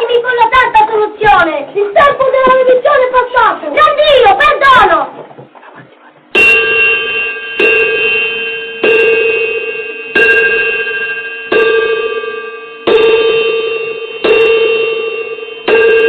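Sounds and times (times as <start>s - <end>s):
bell tolling: 6.4s - 16.0s.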